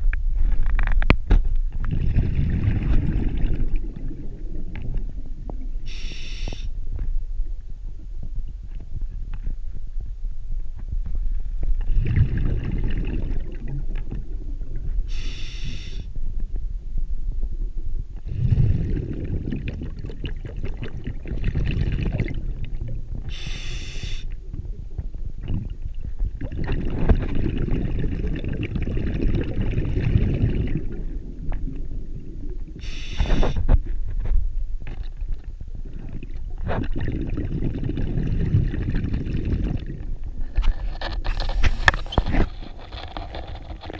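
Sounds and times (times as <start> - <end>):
bubbling exhalation underwater: 1.8 - 6.6, 11.8 - 16.1, 18.2 - 33.7, 35.0 - 40.3
regulator inhalation hiss: 5.8 - 6.7, 15.1 - 16.1, 23.3 - 24.4, 32.8 - 33.6.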